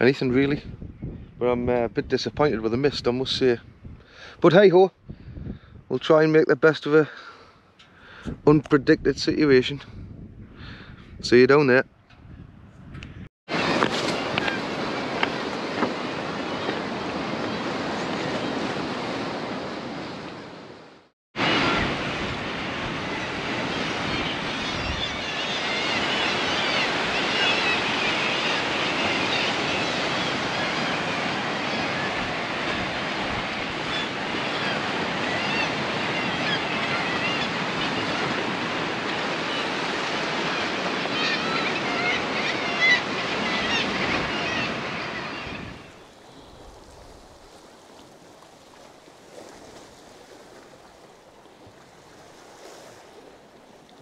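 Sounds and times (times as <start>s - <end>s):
surf washing against rocks: 13.5s - 20.5s, 25.6s - 54.0s.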